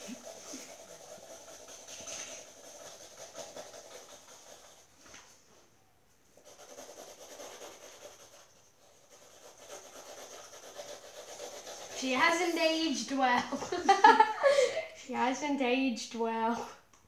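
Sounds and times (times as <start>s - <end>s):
felt-tip markers rubbing on paper: 0.0s - 4.9s, 6.4s - 12.9s.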